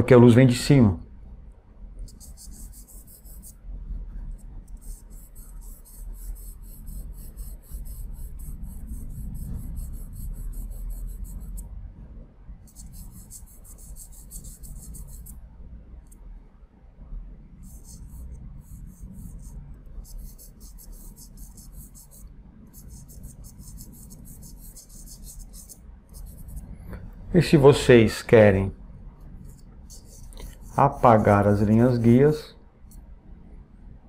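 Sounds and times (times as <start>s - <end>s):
charcoal pencil scratching paper: 2.1s - 3.6s, 4.7s - 11.6s, 12.7s - 15.4s, 17.6s - 26.8s, 29.5s - 32.2s.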